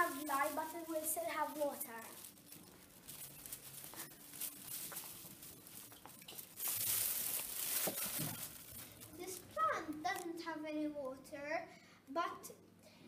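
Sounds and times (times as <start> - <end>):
plastic bin bag rustling: 0.0 - 10.2.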